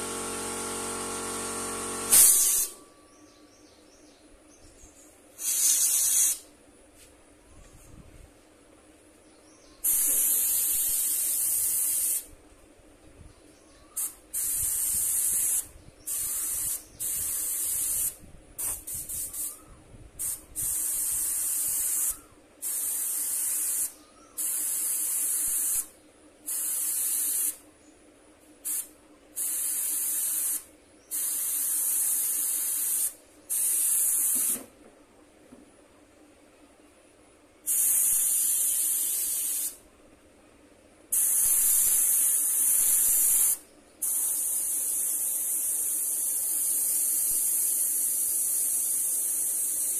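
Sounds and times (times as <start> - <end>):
airbrush spraying hiss: 2.0 - 2.8, 5.4 - 6.5, 9.8 - 12.4, 14.0 - 25.9, 26.5 - 27.6, 28.6 - 34.7, 37.7 - 39.8, 41.1 - 49.9
airbrush trigger flutters: 2.1 - 2.8
faint steady hum: 34.7 - 38.2.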